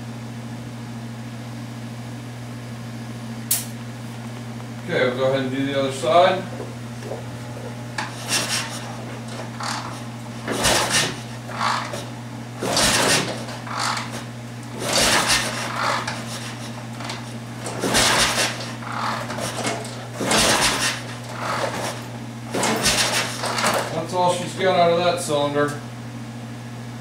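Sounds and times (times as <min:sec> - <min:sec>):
steady low hum: 0:00.0 - 0:27.0
motorcycle engine turning over: 0:06.5 - 0:24.1.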